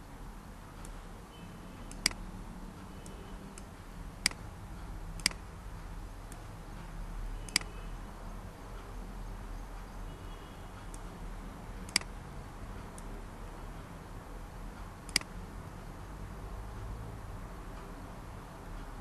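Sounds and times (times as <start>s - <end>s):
low steady hum: 0.0s - 19.0s
computer mouse clicking: 1.9s - 2.2s, 5.2s - 5.5s, 7.5s - 7.8s, 11.8s - 12.2s, 15.0s - 15.8s.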